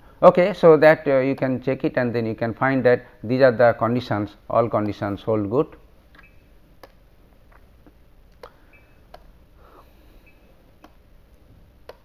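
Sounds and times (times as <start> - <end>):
low room hiss: 0.0 - 12.0
faint clicks and taps: 10.8 - 12.0.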